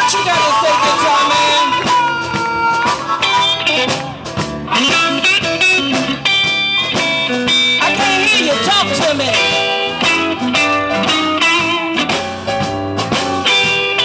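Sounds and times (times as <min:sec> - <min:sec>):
harmonica playing: 0:00.0 - 0:04.1
electric guitar: 0:00.0 - 0:14.0.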